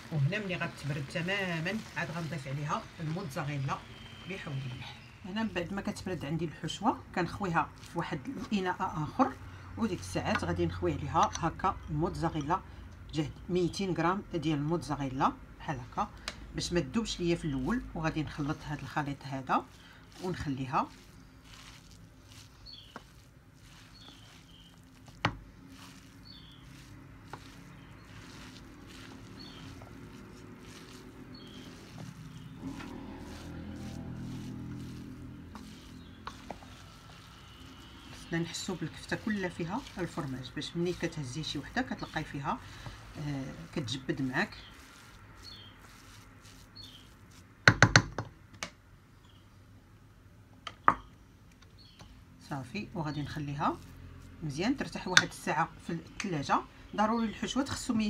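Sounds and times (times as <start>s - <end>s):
wooden spoon stirring in metal bowl: 0.0s - 48.3s, 52.0s - 58.0s
low motor hum: 17.2s - 47.0s
wooden spoon knocking on metal bowl: 47.6s - 48.7s.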